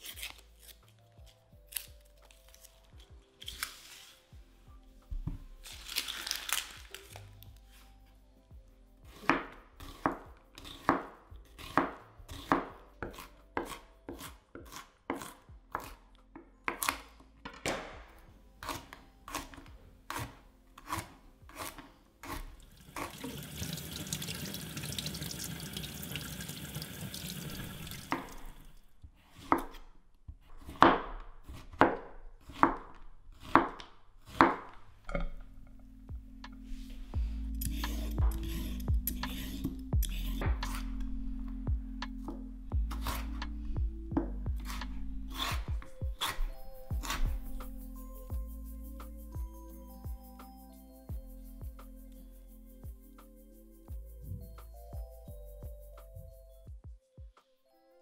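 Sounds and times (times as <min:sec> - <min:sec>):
knife chopping on cutting board: 0:09.1 - 0:16.0, 0:16.7 - 0:17.0, 0:18.6 - 0:23.4, 0:29.3 - 0:29.9, 0:30.5 - 0:34.7, 0:42.3 - 0:43.4, 0:44.2 - 0:47.5.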